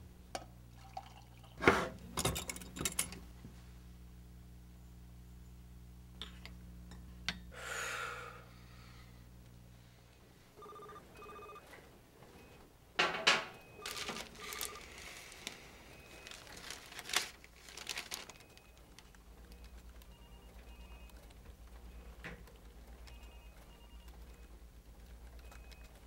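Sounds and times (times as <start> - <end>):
telephone ringing: 10.6 - 11.8, 13.2 - 17.0, 18.0 - 22.2, 23.0 - 24.6
rustling and clattering handling: 13.0 - 19.1.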